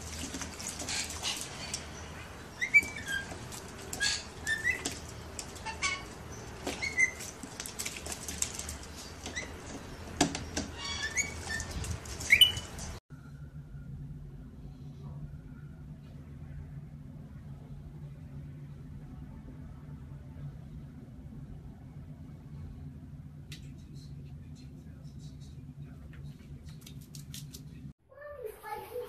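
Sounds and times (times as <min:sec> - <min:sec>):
bird splashing in water: 0:00.0 - 0:13.0
high rising bird chirps: 0:09.0 - 0:12.8.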